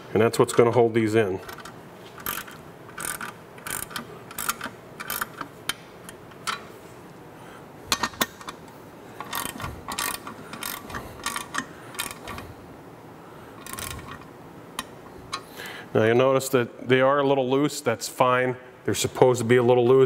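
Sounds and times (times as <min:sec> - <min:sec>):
ratchet wrench clicking: 0:01.5 - 0:05.5, 0:09.2 - 0:12.4, 0:13.6 - 0:14.9.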